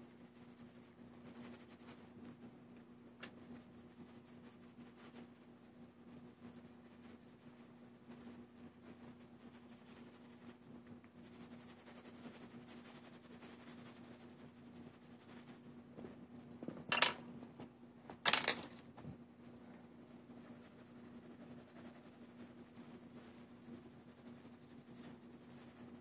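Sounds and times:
pencil scratching on paper: 0.0s - 2.1s, 3.3s - 10.6s, 11.2s - 15.7s, 20.4s - 26.0s.

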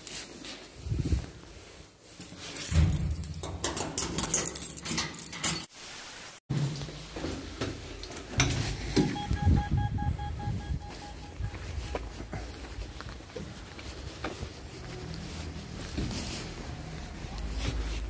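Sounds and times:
clothing rustle: 0.0s - 3.2s, 5.2s - 9.4s, 10.6s - 18.0s
intercom lock beeping: 9.0s - 12.3s
footsteps on stairs: 10.8s - 16.4s.

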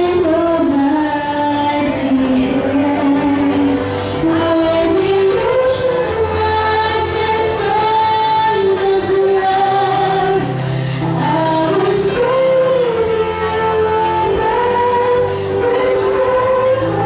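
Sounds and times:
backing music: 0.0s - 17.0s
singer on a microphone: 0.0s - 17.0s
choir singing: 2.2s - 17.0s.

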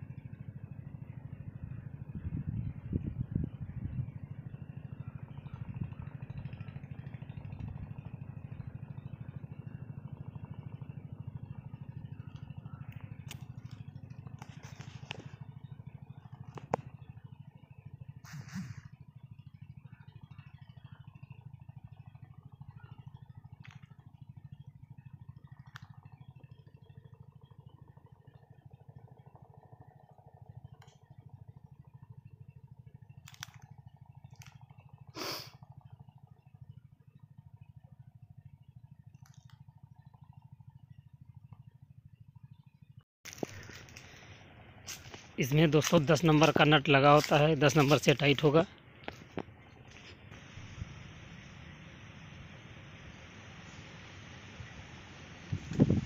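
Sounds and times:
low background hum: 0.0s - 56.0s.

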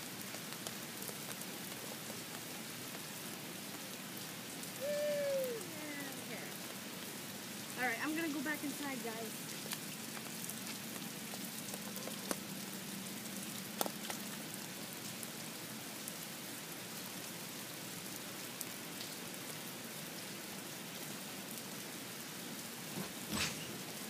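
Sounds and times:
steady rain hiss: 0.0s - 24.0s
rain drop ticks: 0.2s - 4.0s, 7.7s - 15.3s.

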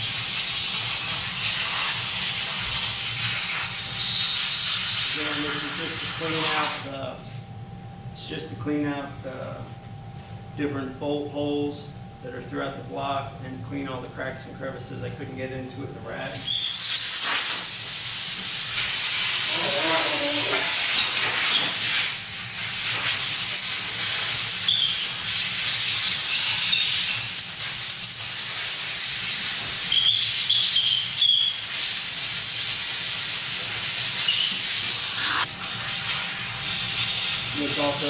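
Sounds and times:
high air whistles: 16.3s - 19.7s, 20.5s - 28.8s, 29.8s - 32.9s, 34.0s - 35.5s
compressed air blow gun hissing: 16.3s - 38.0s.

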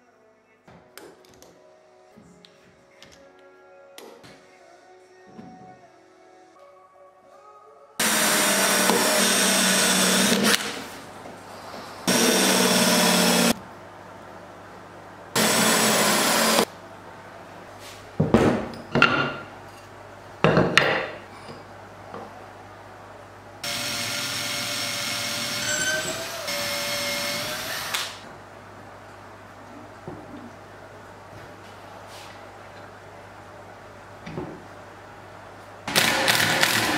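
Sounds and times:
cordless drill running: 8.0s - 10.8s, 12.1s - 13.6s, 15.4s - 16.7s, 23.6s - 28.2s, 35.9s - 36.9s.

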